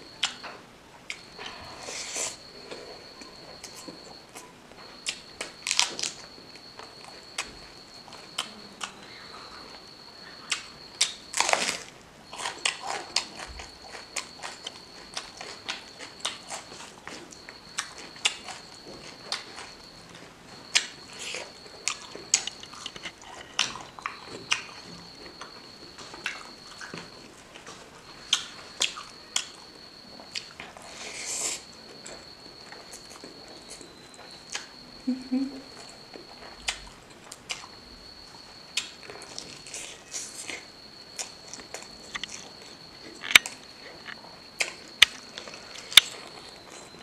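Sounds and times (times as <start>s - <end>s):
high-pitched whine: 0.0s - 15.5s
close-up chewing: 1.1s - 34.9s, 35.7s - 47.0s.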